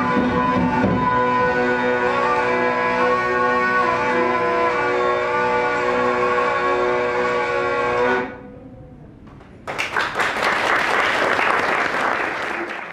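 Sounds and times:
hurdy-gurdy drone: 0.0 - 9.0
applause: 9.4 - 12.9.

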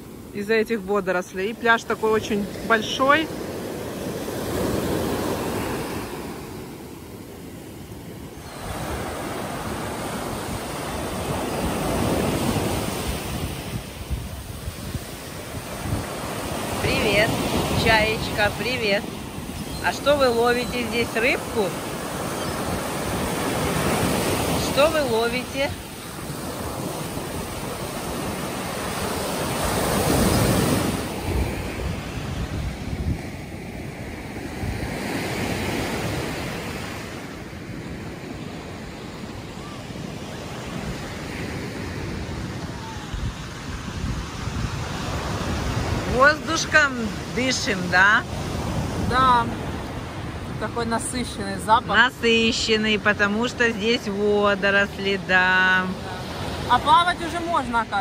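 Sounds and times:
waves breaking on beach: 0.0 - 58.0
wind buffeting microphone: 8.5 - 20.7, 21.6 - 33.6, 41.9 - 46.2.

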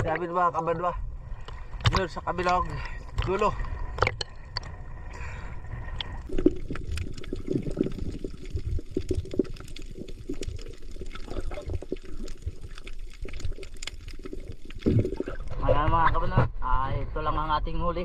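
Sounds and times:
muffled underwater rush: 0.0 - 17.8
sea water splashing: 1.0 - 15.7.

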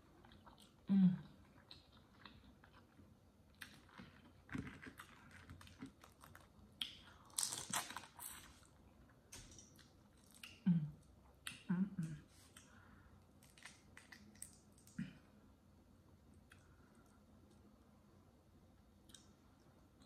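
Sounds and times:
crawfish shells cracking: 3.6 - 8.3.

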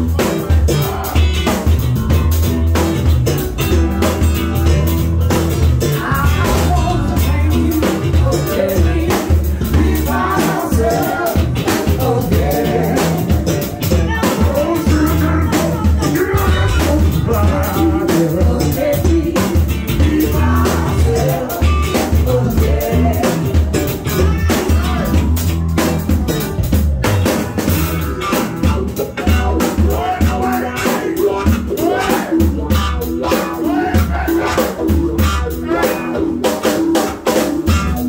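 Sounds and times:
bass guitar: 0.0 - 38.0
drums: 0.0 - 38.0
electric guitar: 0.0 - 38.0
keyboard: 0.0 - 38.0
person singing into a microphone: 6.0 - 25.2, 28.9 - 36.4.

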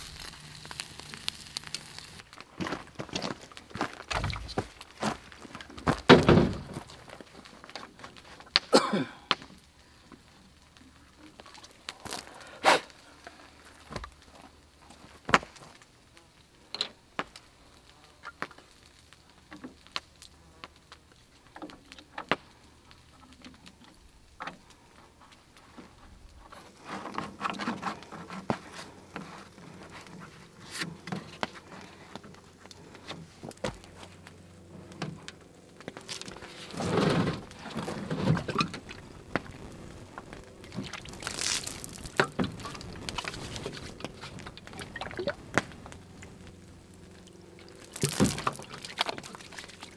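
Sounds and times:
rubbing and fumbling: 25.1 - 49.9.

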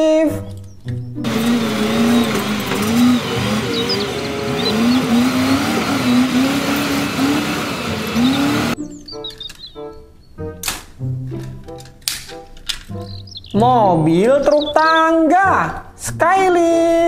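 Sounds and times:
diesel engine revving: 1.2 - 8.8
working machine noise: 1.2 - 8.8.

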